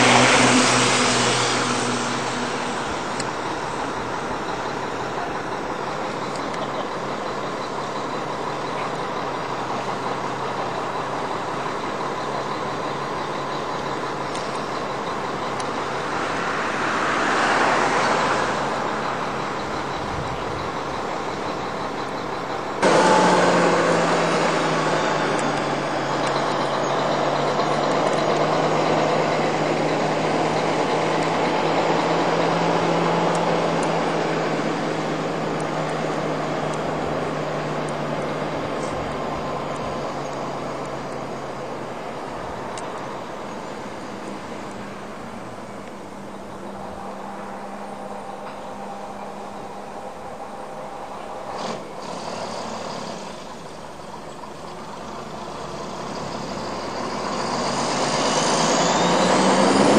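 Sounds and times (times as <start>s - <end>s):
vehicle passing by: 0.0s - 4.2s, 15.2s - 20.0s, 22.8s - 50.0s, 55.1s - 59.9s
steady engine drone: 0.0s - 59.9s
truck engines running: 0.0s - 59.9s.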